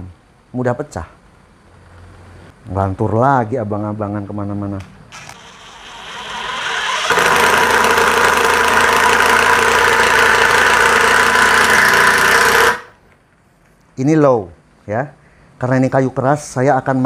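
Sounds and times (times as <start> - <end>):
impact driver hammering screw: 5.4 - 13.0.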